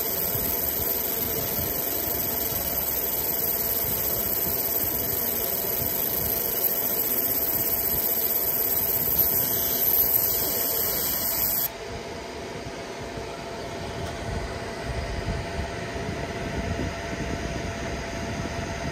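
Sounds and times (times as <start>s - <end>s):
laser engraver high-pitched hiss: 0.0s - 11.7s
machine fan hum: 0.0s - 18.9s.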